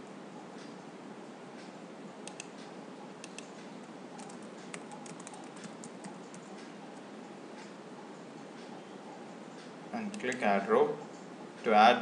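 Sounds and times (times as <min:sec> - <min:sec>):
keyboard typing: 0:02.2 - 0:02.6, 0:03.2 - 0:07.0.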